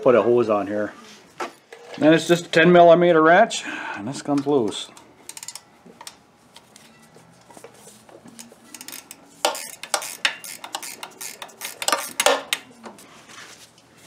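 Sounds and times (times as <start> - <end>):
wrench clicking against metal: 5.3 - 5.6, 8.7 - 12.6.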